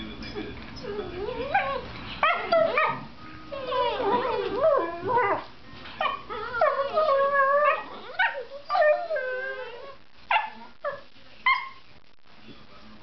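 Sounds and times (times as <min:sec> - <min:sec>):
dogs howling whines: 0:00.8 - 0:10.0
dog yelps: 0:06.0 - 0:11.8.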